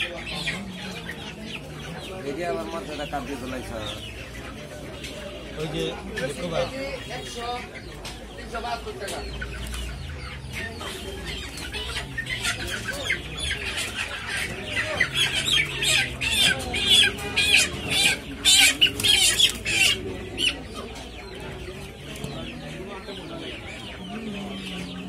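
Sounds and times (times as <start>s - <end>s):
chickens clucking and squawking: 0.0s - 25.0s.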